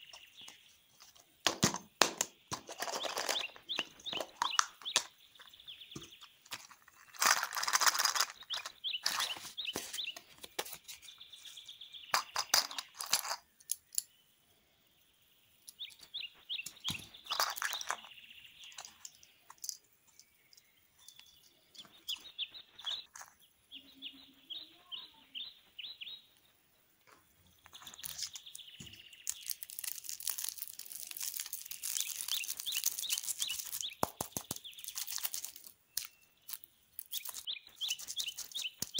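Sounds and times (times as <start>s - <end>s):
plastic toys clicking and rattling: 1.0s - 10.8s, 12.1s - 14.1s, 15.7s - 23.4s, 27.6s - 38.9s
plastic wrapper crinkling: 6.5s - 9.9s, 27.7s - 38.9s.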